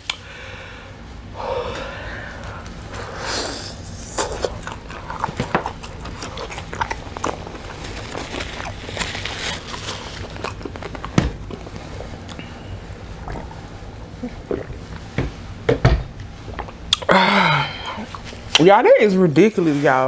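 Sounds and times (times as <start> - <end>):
person drinking: 1.4 - 15.4, 16.3 - 18.6.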